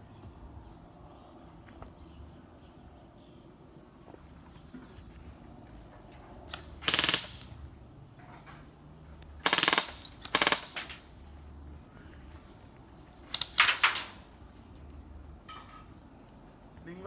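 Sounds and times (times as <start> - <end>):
airsoft guns firing bursts: 6.5 - 7.6, 9.4 - 11.0.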